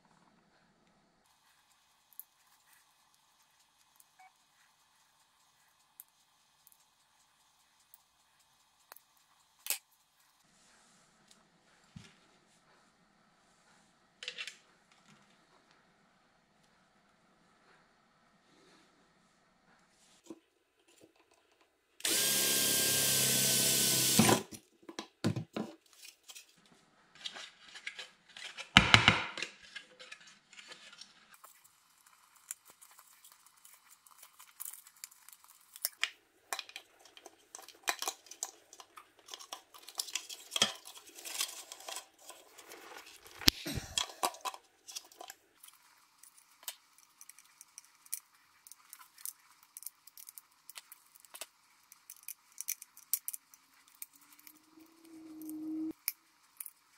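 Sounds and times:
cordless drill whining: 22.0s - 24.5s.

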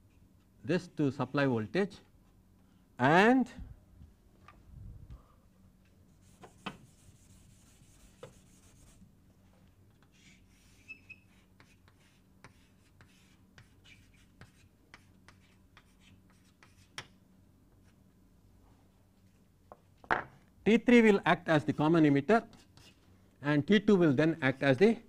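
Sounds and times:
pen scratching while writing: 10.2s - 16.9s.

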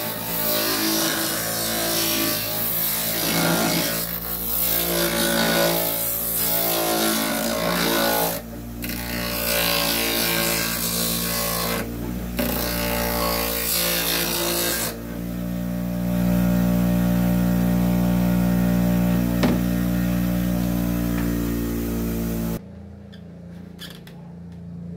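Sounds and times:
bench grinder motor humming: 0.0s - 22.6s
light knock: 19.4s - 19.6s.

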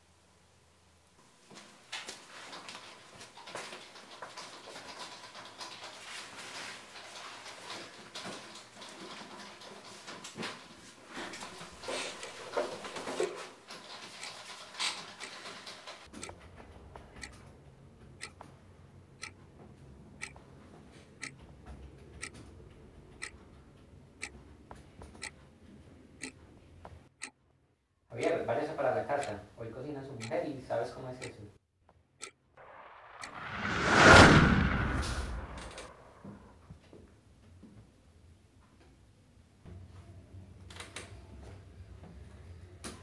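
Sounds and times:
clock ticking: 11.3s - 12.3s, 14.2s - 14.4s, 16.2s - 16.4s, 18.1s - 18.4s, 19.2s - 19.4s, 20.2s - 20.4s, 21.2s - 21.4s, 22.2s - 22.4s, 23.2s - 23.4s, 24.2s - 24.4s, 27.1s - 27.4s, 29.1s - 29.6s, 30.2s - 30.5s, 31.2s - 31.4s, 32.2s - 32.4s
low hum: 32.6s - 36.5s.

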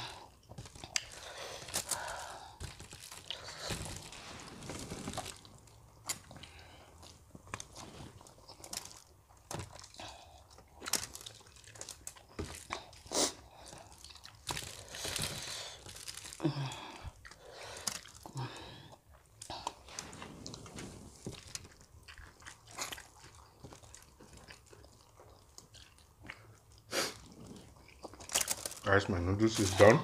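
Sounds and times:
wet chewing: 0.0s - 28.9s
crunchy biting: 19.6s - 28.8s.

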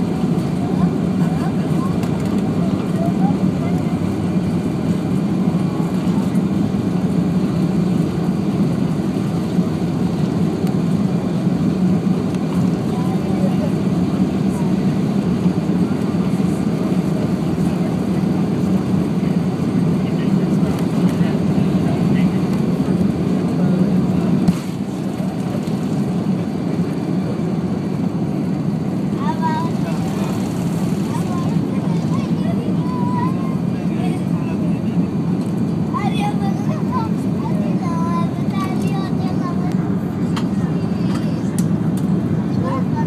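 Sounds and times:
airplane cabin engine noise: 0.0s - 43.0s.

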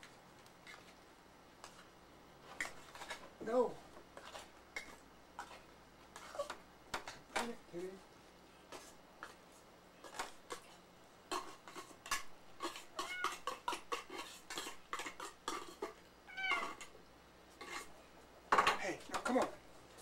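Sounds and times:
cats meowing: 13.0s - 13.5s, 16.2s - 16.9s.

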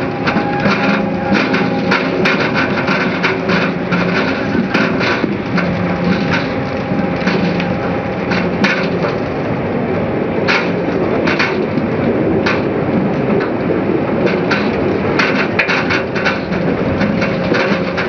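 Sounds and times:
rumble of tumbling beets: 0.0s - 18.0s
steady machine hum: 0.0s - 18.0s.

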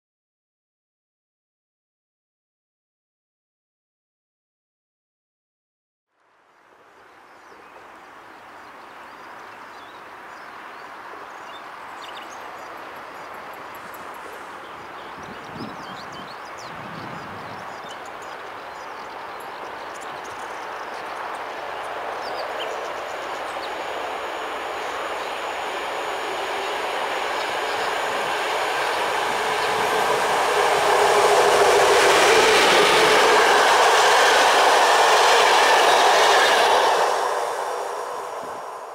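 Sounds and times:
diesel locomotive approaching: 6.6s - 38.9s
train wheels on rails: 9.7s - 38.9s.

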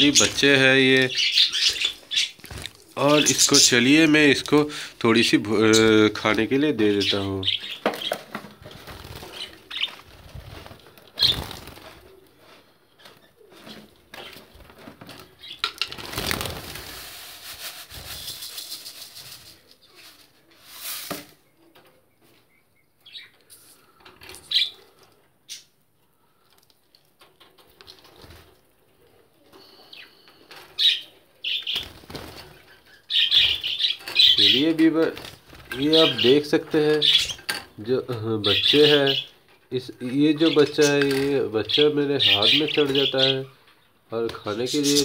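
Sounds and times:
birds flapping wings: 8.0s - 12.1s, 14.1s - 19.4s, 31.7s - 32.6s
rustling flurry: 8.4s - 15.4s.

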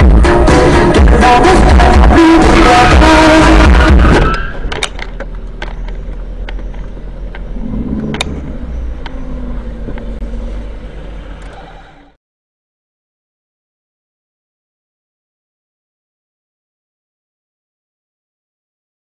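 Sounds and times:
music: 0.0s - 4.3s
car engine drone and road noise: 0.0s - 12.2s.

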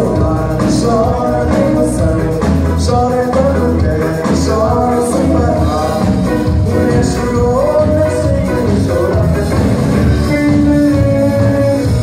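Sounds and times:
bass line: 0.0s - 12.0s
electric guitar: 0.0s - 12.0s.

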